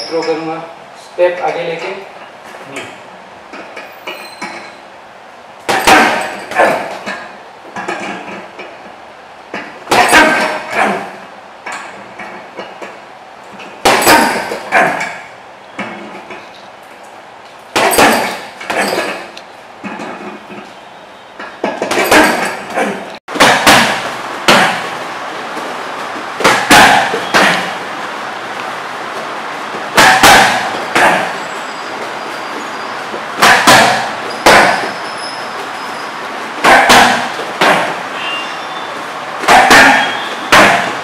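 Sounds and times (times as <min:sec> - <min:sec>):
strikes on pads: 0:05.7 - 0:06.9, 0:23.3 - 0:25.0, 0:26.4 - 0:27.8, 0:29.9 - 0:31.3, 0:33.4 - 0:34.9, 0:36.6 - 0:38.0, 0:39.4 - 0:41.0
punches on heavy punching bag: 0:05.7 - 0:07.1, 0:09.9 - 0:11.2, 0:13.8 - 0:15.2, 0:17.7 - 0:19.2, 0:21.7 - 0:25.0, 0:26.4 - 0:27.9, 0:29.8 - 0:31.4, 0:33.3 - 0:35.0, 0:36.6 - 0:38.1, 0:39.4 - 0:41.0.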